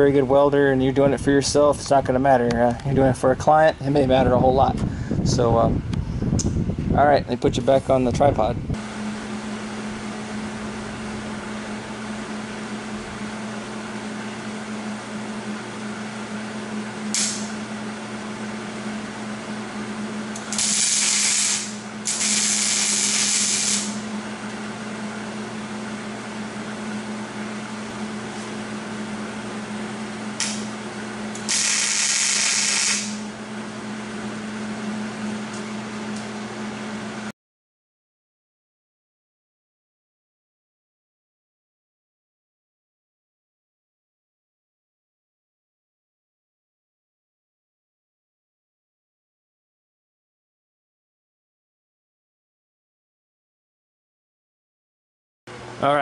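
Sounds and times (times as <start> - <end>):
steady low hum: 0.0 - 37.3
welder crackling hiss: 17.1 - 17.6, 20.4 - 24.1, 30.4 - 30.7, 31.4 - 33.3.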